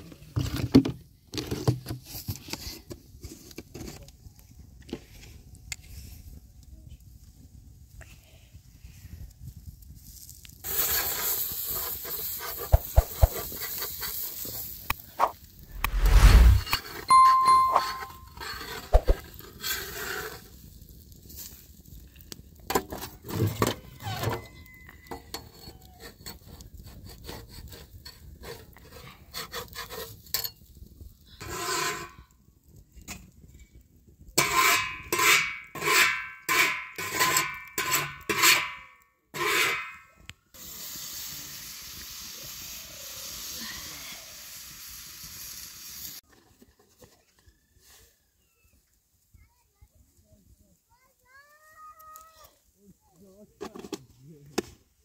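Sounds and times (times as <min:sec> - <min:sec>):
wood fire crackling: 0:09.9 - 0:17.7, 0:18.9 - 0:23.2
steady hiss: 0:10.6 - 0:16.6, 0:40.6 - 0:46.2.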